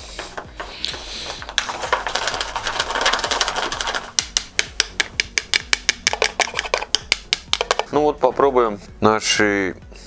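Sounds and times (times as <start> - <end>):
metal spoon scraping plastic bowl: 0.0 - 4.2, 6.0 - 7.0.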